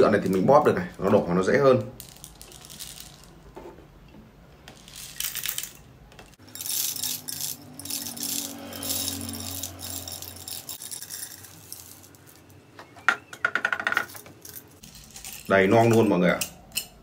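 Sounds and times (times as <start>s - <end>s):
matches rattling into a can: 1.9s - 3.4s, 4.7s - 12.6s.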